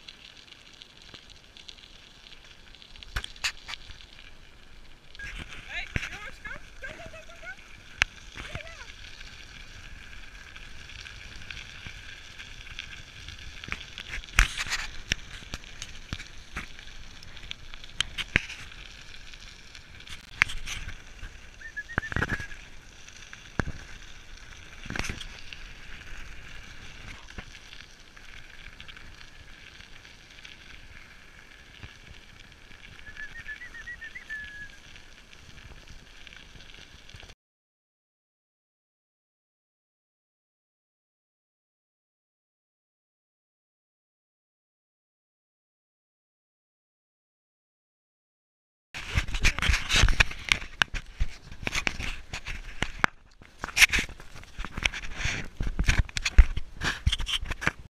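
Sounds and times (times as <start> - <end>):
wheels crunching over gravel: 0.0 - 37.4, 49.0 - 57.9.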